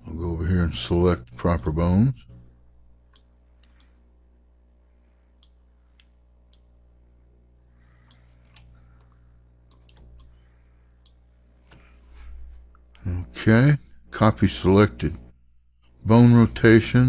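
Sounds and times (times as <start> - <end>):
low electrical hum: 0.0 - 17.0
computer mouse clicks: 8.0 - 10.4.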